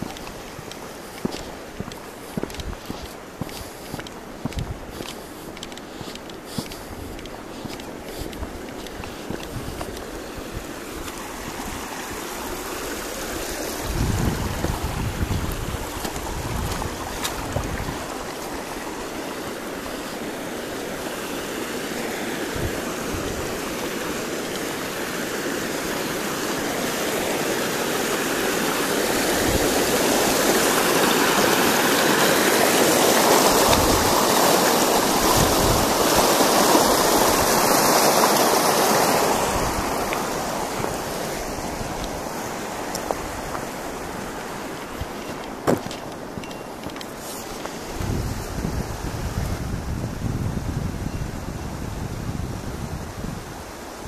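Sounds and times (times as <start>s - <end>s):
wind buffeting microphone: 0.0s - 11.8s, 12.5s - 20.1s, 33.2s - 37.8s, 39.0s - 47.0s, 47.7s - 53.8s
rushing stream water: 0.0s - 54.0s.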